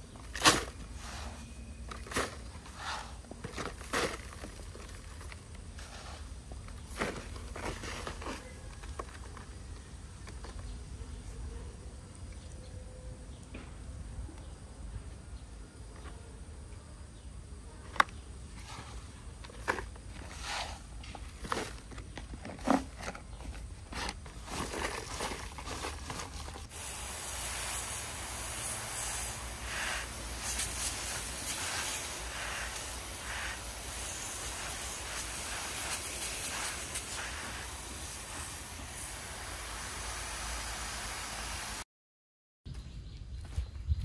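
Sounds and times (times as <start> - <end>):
steady hiss: 26.6 - 41.8.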